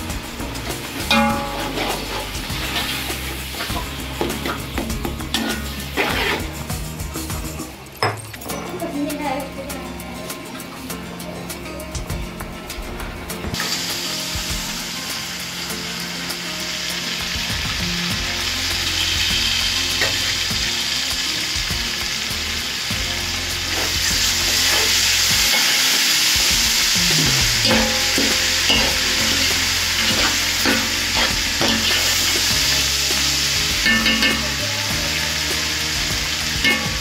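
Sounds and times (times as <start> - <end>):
meat and onions sizzling in oil: 0.0 - 7.9, 13.2 - 37.0
metal spoon stirring in pot: 27.6 - 32.8, 33.8 - 34.5.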